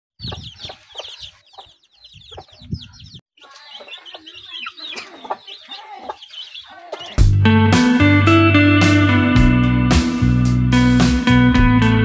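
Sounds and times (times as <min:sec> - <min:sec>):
chicks peeping: 0:00.2 - 0:07.4.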